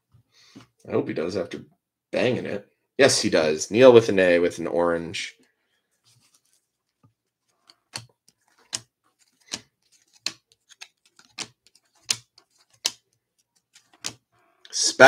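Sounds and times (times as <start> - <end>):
trading cards clicking: 7.6 - 14.2.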